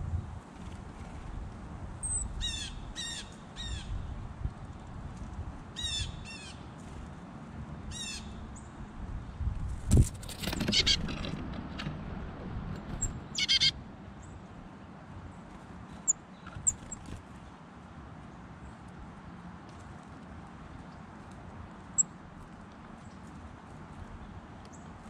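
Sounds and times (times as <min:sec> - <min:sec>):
chickadees calling: 0:10.4 - 0:11.2, 0:12.9 - 0:14.3.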